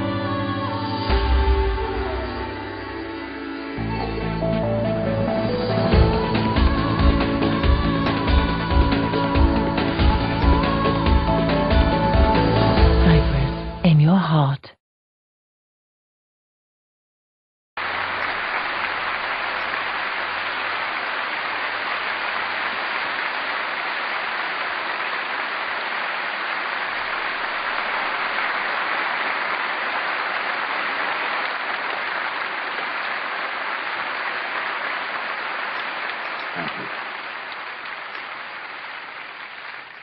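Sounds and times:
large audience applauding: 17.8s - 40.0s.

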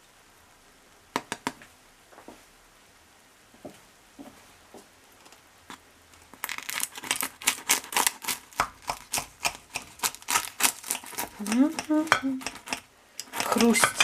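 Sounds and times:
knife crunching through pie crust: 6.4s - 14.0s.

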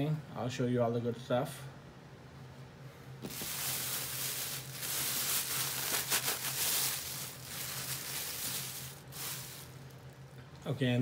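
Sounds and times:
plastic bag crinkling: 3.2s - 10.3s.

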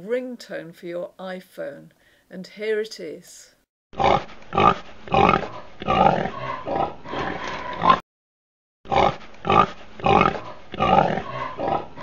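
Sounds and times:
pigs grunting and oinking: 4.0s - 8.0s, 8.9s - 12.0s.

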